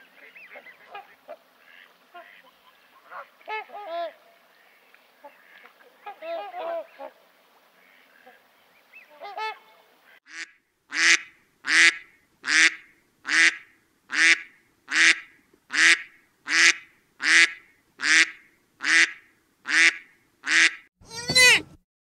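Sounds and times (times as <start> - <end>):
bird calling: 0.0 - 7.2.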